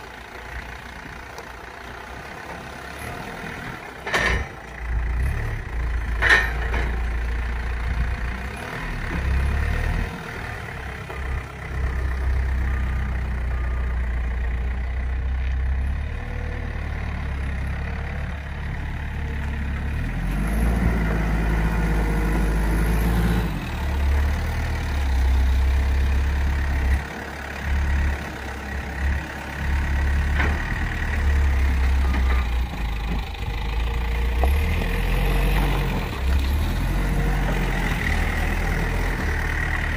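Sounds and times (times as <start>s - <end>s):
heavy vehicle engine rumbling: 0.0s - 39.9s.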